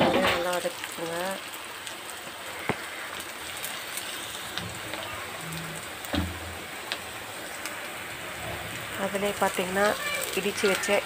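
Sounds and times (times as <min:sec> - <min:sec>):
vegetables sizzling in hot oil: 0:00.0 - 0:11.0
low thump: 0:06.1 - 0:06.5.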